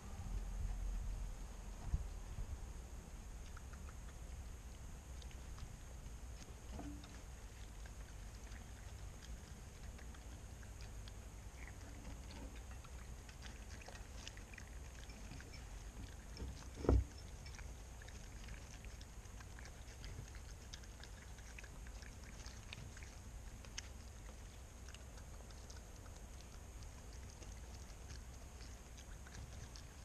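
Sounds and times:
steady low rumble: 0.0s - 30.0s
dull thump: 16.4s - 17.1s.

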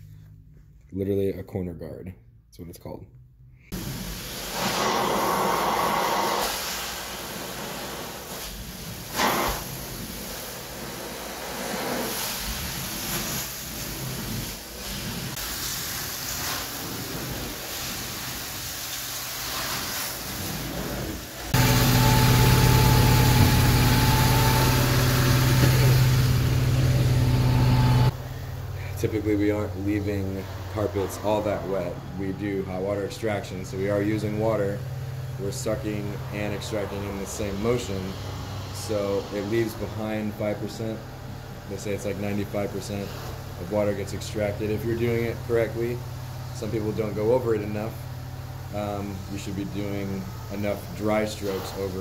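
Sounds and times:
carpet extraction vacuum rushing: 3.8s - 15.3s, 20.4s - 28.2s
loud machine hum: 21.3s - 41.6s.

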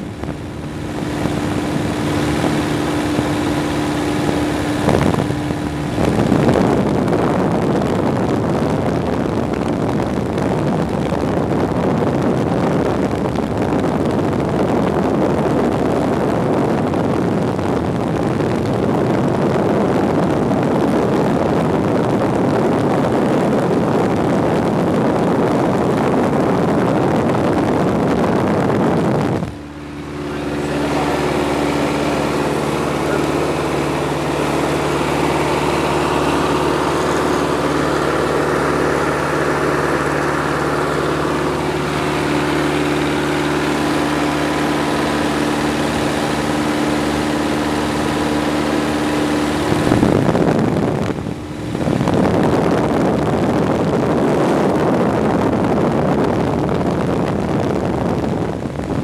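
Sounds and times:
light aircraft engine droning: 0.0s - 59.0s.

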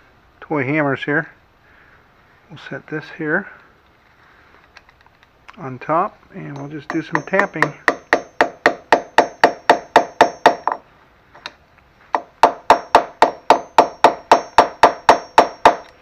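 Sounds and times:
hammer tapping on metal: 6.5s - 10.8s, 12.1s - 16.0s.

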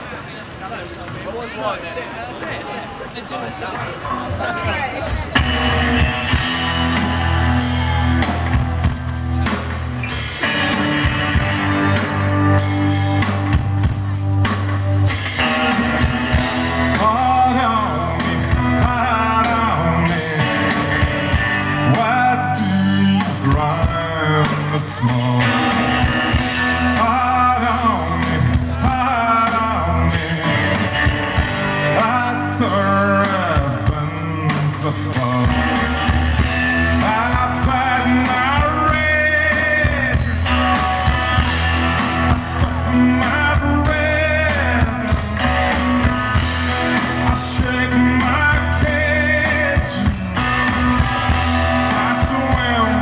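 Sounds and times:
electric guitar: 4.2s - 53.0s
bass guitar: 4.3s - 53.0s
man singing: 15.3s - 53.0s.

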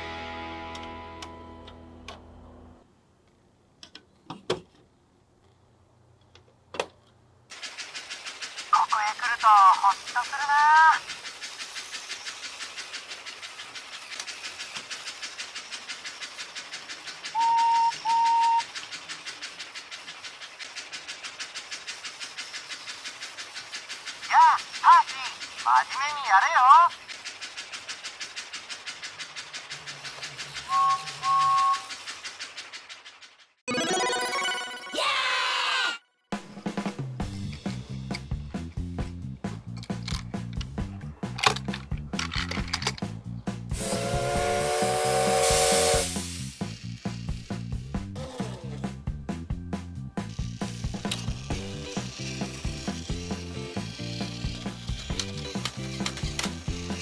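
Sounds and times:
toy train clattering: 7.5s - 33.6s, 39.6s - 43.2s, 46.0s - 47.9s, 50.2s - 57.0s
electronic toy whistle: 17.3s - 18.7s, 30.7s - 32.0s
plastic track pieces clicking: 39.8s - 43.1s, 50.3s - 57.0s.

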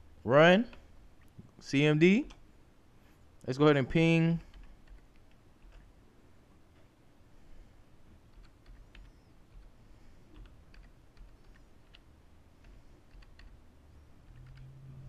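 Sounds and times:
low steady hum: 0.0s - 15.0s
keyboard typing: 4.4s - 5.9s, 8.3s - 13.6s, 14.2s - 14.7s.

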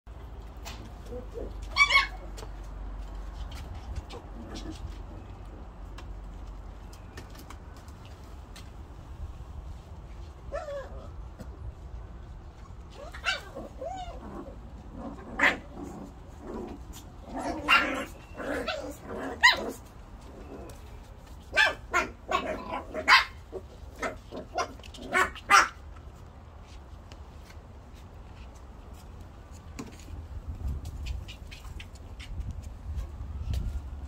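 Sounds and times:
puppies barking and yipping: 0.6s - 6.0s, 12.6s - 25.9s.

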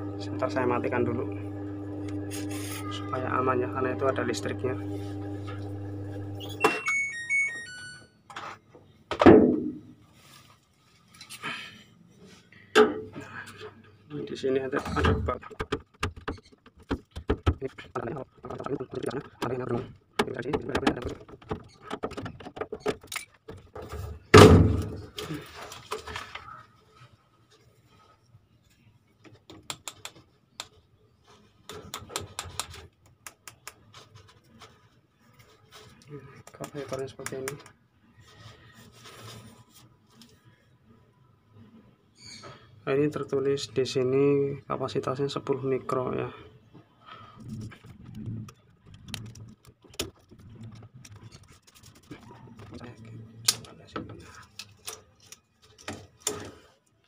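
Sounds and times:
washing machine motor humming: 0.0s - 6.6s
short beeping tune: 6.4s - 8.1s
sharp clicks and plastic rattles: 15.2s - 23.9s, 47.4s - 57.0s.

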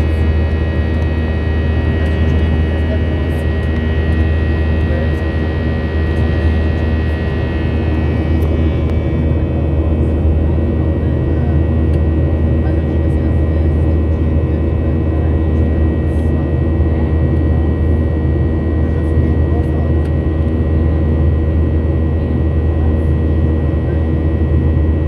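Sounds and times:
steady whining tones: 0.0s - 20.5s
jet engine low drone: 0.0s - 25.0s.

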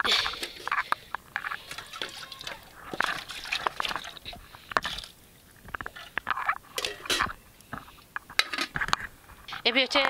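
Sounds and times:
metal lid scraping pot rim: 0.4s - 4.2s, 5.9s - 7.4s
liquid draining into basin: 1.5s - 5.1s.

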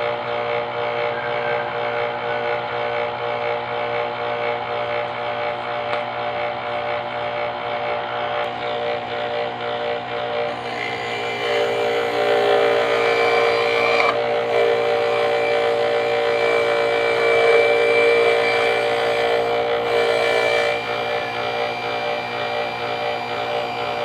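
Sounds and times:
electric grater motor whining: 0.0s - 24.0s
ginger grating on drum: 10.5s - 24.0s.

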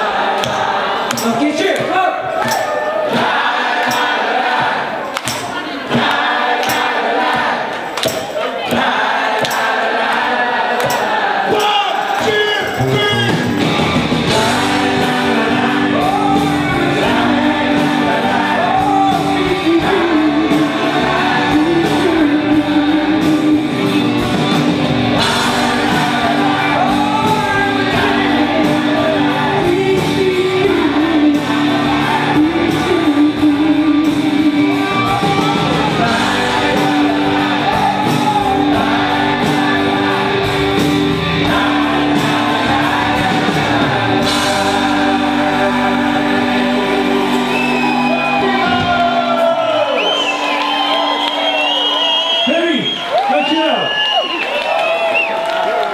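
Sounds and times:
live pop-rock band playing: 0.0s - 54.0s
man singing into a microphone: 14.3s - 24.1s, 25.2s - 40.3s.

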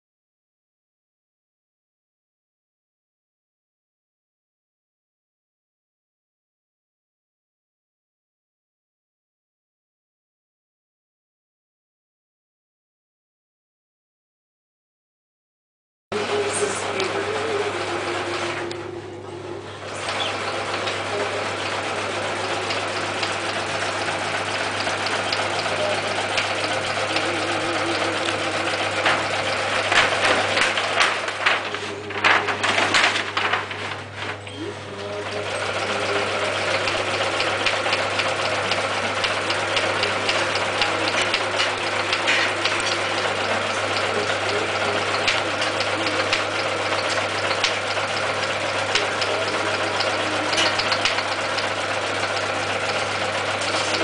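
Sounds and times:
sewing machine stitching: 16.2s - 18.9s, 19.8s - 34.4s, 35.2s - 54.0s.

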